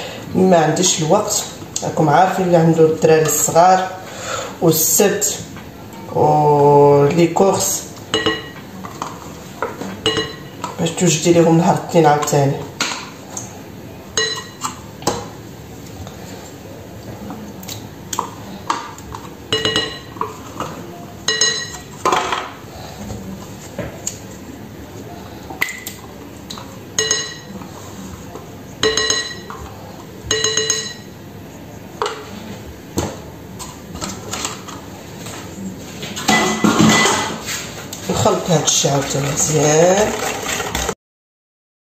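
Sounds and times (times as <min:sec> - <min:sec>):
utensil clinking on glass bowl: 0:27.0 - 0:27.5, 0:28.8 - 0:29.6.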